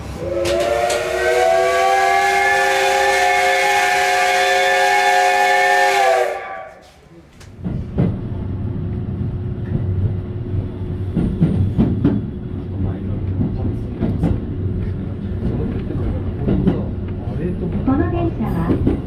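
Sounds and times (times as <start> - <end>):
low train rumble: 0.0 - 19.0
steam whistle blast: 0.1 - 6.9.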